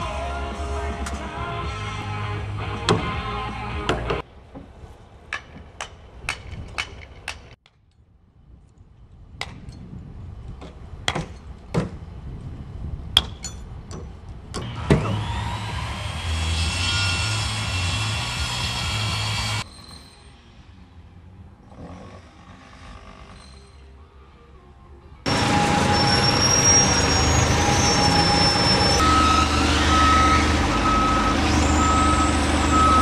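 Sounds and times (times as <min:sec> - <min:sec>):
music: 0:00.0 - 0:04.2, 0:23.8 - 0:25.3
circular saw cutting board: 0:14.6 - 0:20.4.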